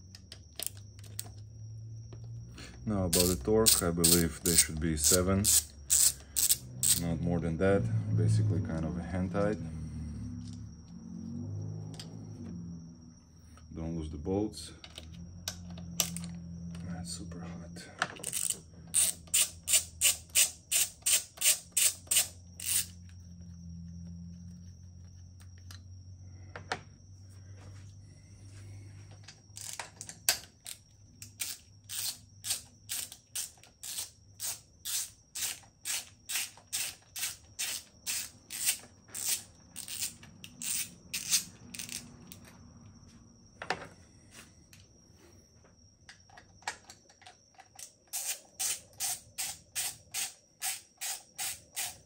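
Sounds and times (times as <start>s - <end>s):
ratchet wrench clicking: 3.1s - 7.1s, 18.2s - 23.0s, 29.6s - 29.8s, 30.7s - 42.4s, 47.8s - 52.0s.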